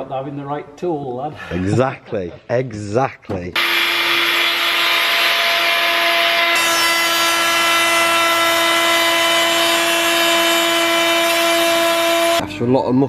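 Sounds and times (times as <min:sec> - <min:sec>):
router bit cutting wood: 0:03.6 - 0:12.4
router motor whine: 0:03.6 - 0:12.4.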